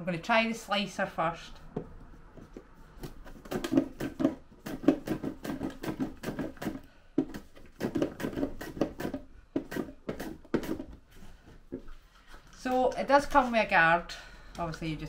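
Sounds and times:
plastic slicer knocks and scrapes: 3.0 - 11.0.

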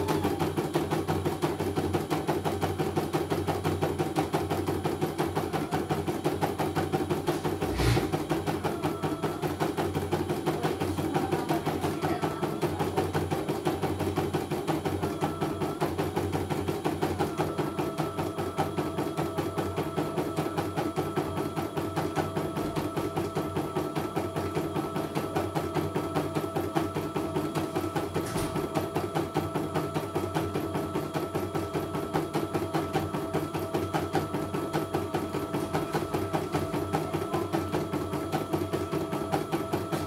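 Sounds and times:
loud knock: 7.3 - 8.3.

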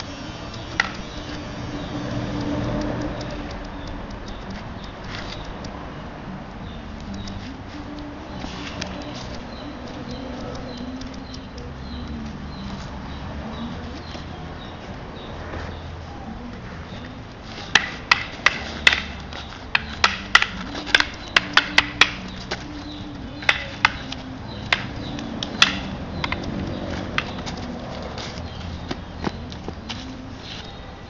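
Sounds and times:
sticks clacking together: 0.0 - 1.4, 17.3 - 30.6.

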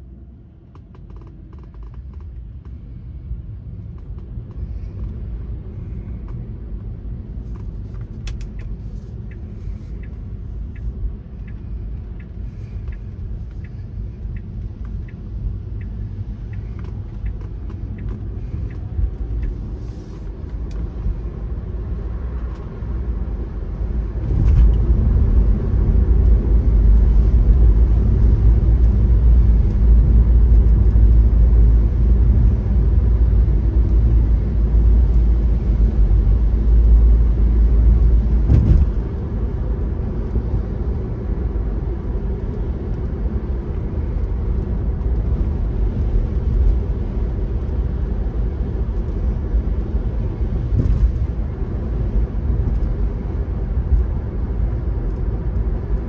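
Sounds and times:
car road rumble: 0.0 - 56.0
faint ticks: 8.3 - 15.2.

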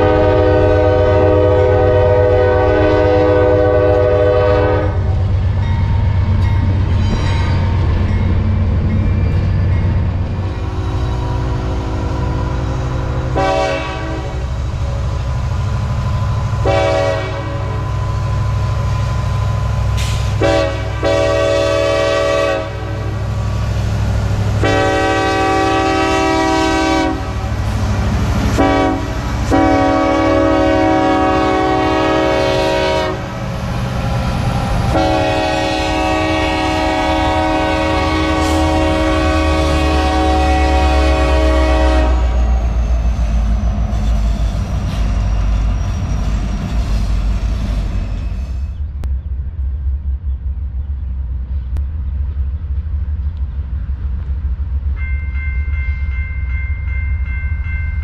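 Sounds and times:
locomotive air horn blasts: 0.0 - 5.2, 13.2 - 14.6, 16.6 - 18.3, 20.0 - 23.2, 24.6 - 27.6, 28.5 - 33.4, 34.9 - 42.6
low rumble of train: 0.0 - 58.0.

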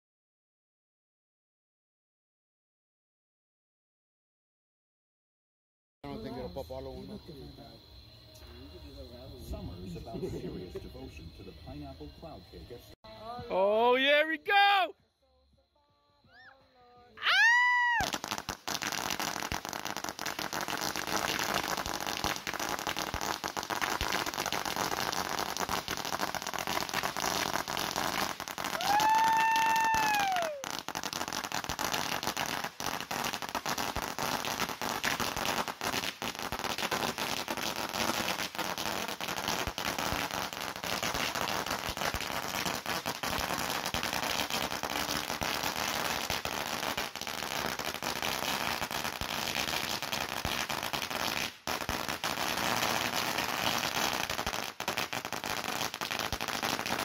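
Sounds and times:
firecracker string crackling: 17.2 - 57.0.

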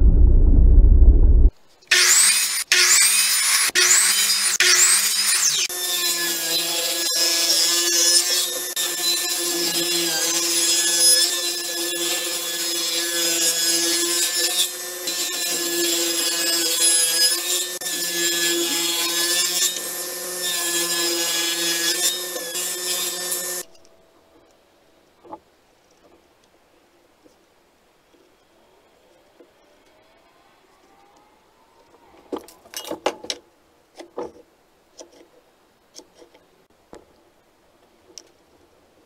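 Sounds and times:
table saw cutting wood: 1.9 - 23.6.

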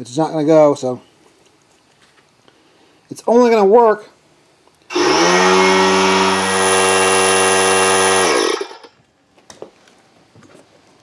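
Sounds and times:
air compressor motor running: 4.9 - 8.9.

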